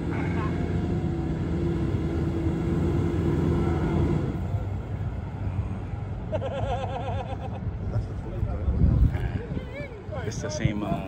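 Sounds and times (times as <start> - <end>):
van engine running under load: 0.0 - 6.4.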